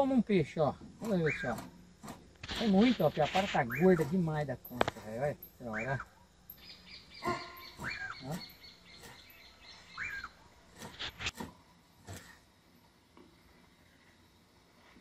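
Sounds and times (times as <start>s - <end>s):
bird calling: 1.0s - 1.8s, 2.4s - 4.2s, 4.8s - 11.3s.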